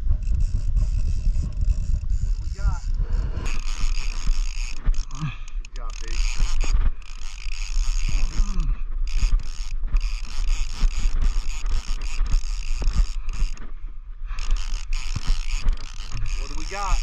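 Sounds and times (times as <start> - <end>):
low steady rumble: 0.0 - 10.0
fishing reel gears whirring: 0.0 - 17.0.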